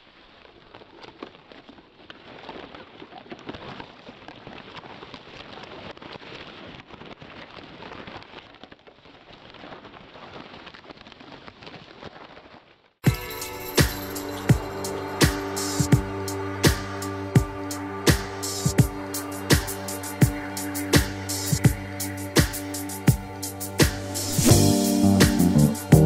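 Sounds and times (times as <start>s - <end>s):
dry grass rustling: 4.8s - 16.0s.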